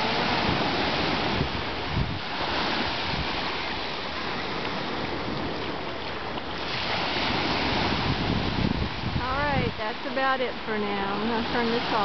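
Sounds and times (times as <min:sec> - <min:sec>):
ocean surf washing ashore: 0:00.0 - 0:12.0
wind buffeting microphone: 0:00.0 - 0:12.0.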